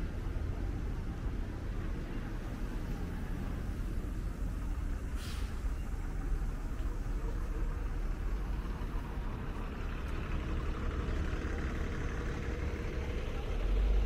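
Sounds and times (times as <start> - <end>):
road noise: 0.0 - 14.0
vehicle engines rumbling: 0.0 - 14.0.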